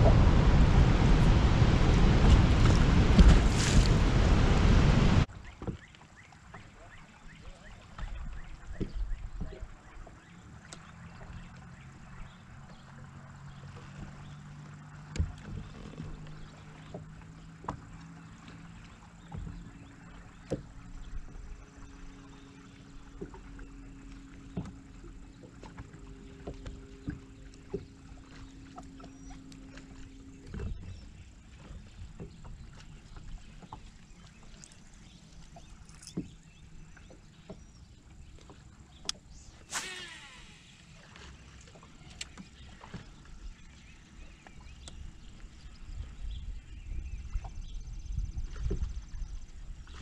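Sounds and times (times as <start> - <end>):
electric trolling motor humming: 0.0 - 5.3, 37.3 - 44.0
low rumble: 0.0 - 5.3
reel spool whirring: 39.0 - 43.4
fishing rod swishing: 39.5 - 41.4.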